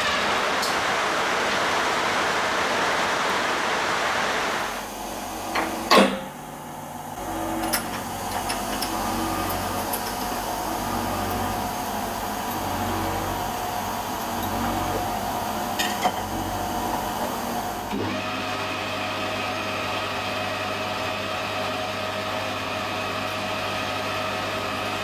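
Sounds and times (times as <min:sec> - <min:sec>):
low machine hum: 0:00.0 - 0:18.0
metal lathe whirring: 0:00.0 - 0:25.0.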